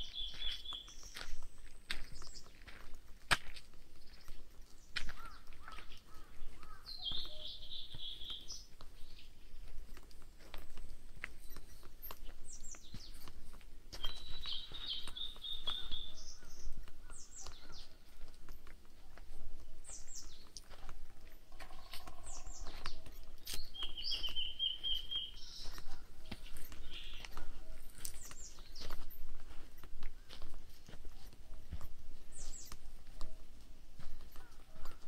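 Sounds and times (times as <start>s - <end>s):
bird trill: 0.0s - 1.4s, 4.0s - 10.1s, 14.0s - 18.0s, 21.5s - 29.3s
birds singing: 0.0s - 35.0s
footsteps crunching on trail: 0.0s - 35.0s.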